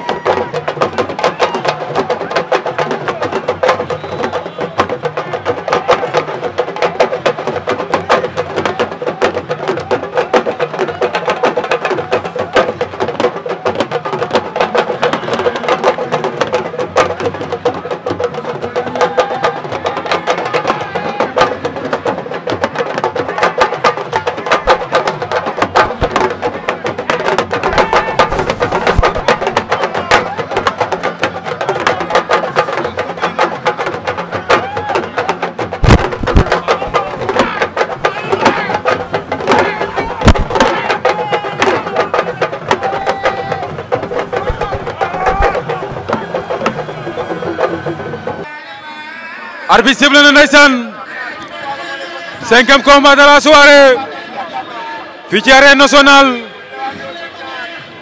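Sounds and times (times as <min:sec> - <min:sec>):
fast drumming: 0:00.0 - 0:48.5
voices singing or chanting: 0:23.1 - 0:50.0.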